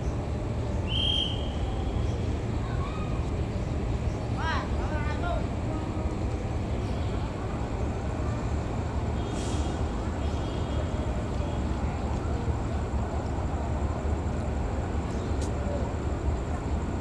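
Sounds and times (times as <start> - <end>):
diesel locomotive engine rumbling: 0.0 - 17.0
brief hiss: 9.2 - 9.9.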